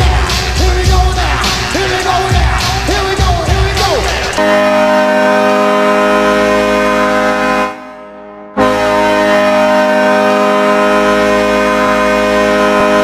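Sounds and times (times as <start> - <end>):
arena goal horn blasting: 3.8 - 13.0.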